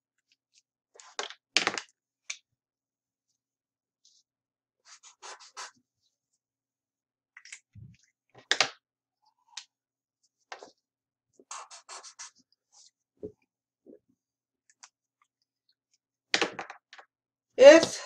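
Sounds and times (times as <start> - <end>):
marker scratching on paper: 4.8 - 5.8, 11.4 - 12.9.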